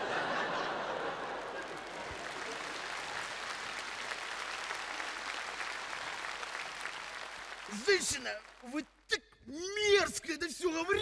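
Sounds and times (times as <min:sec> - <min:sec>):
audience laughing: 0:00.0 - 0:02.8
audience applauding: 0:00.0 - 0:08.8.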